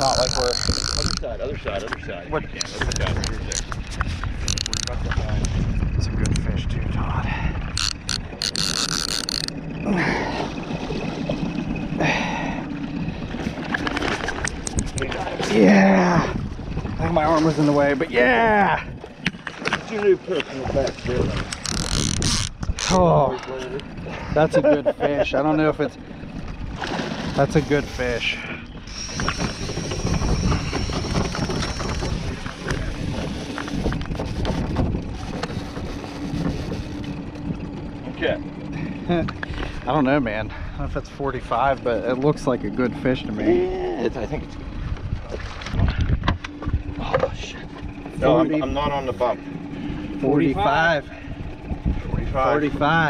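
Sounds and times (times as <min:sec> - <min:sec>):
wind buffeting microphone: 0:00.0 - 0:24.6, 0:25.2 - 0:53.0
outboard motor humming: 0:00.0 - 0:53.0
knocks and rattles of handling: 0:02.6 - 0:05.5
water splashing: 0:25.8 - 0:48.2.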